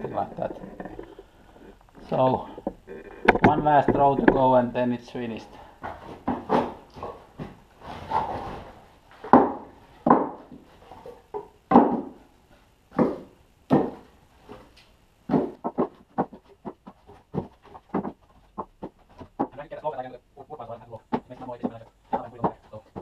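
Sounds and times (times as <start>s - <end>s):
firewood knocking and clattering: 0.0s - 4.8s, 9.1s - 12.2s, 12.9s - 14.6s, 15.3s - 19.7s, 20.9s - 23.0s.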